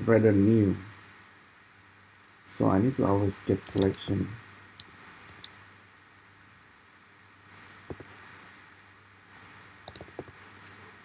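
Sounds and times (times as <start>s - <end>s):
microphone hiss: 0.0s - 11.0s
mouse and keyboard clicks: 3.2s - 4.0s, 4.8s - 5.6s, 7.4s - 8.4s, 9.3s - 10.8s.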